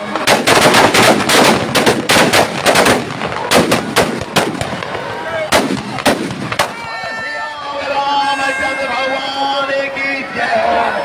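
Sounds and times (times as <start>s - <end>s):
fire crackling: 0.0s - 7.0s
firecrackers banging: 0.0s - 7.4s.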